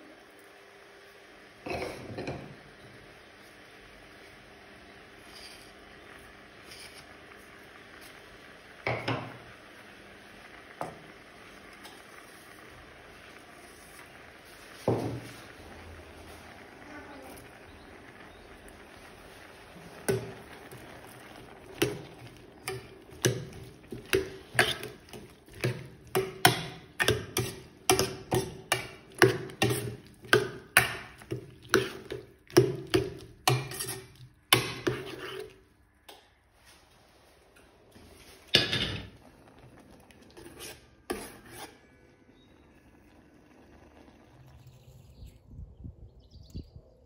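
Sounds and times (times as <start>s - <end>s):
metal spoon stirring in pot: 5.2s - 5.9s, 6.6s - 7.5s, 18.3s - 35.7s, 40.1s - 42.5s.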